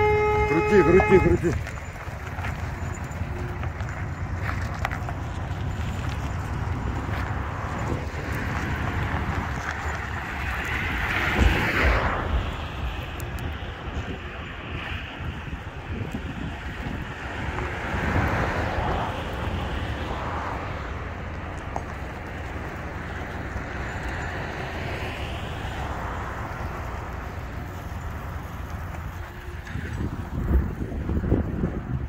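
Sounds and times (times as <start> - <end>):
diesel truck engine running: 0.0 - 32.0
wind on microphone: 5.8 - 21.0, 28.8 - 32.0.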